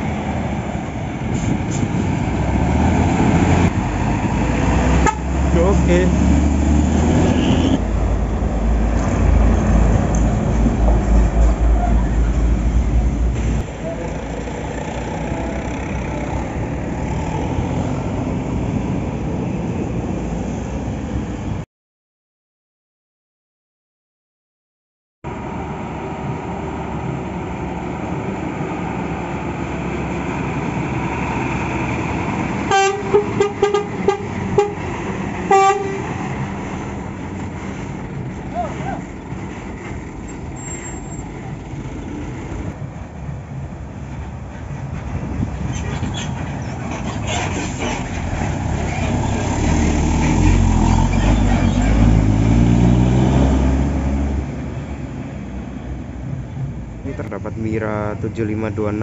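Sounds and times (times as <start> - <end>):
bus diesel engine passing: 0.0 - 21.6, 25.3 - 59.0
bus horn toots: 5.0 - 5.4, 7.2 - 7.9, 32.7 - 36.2.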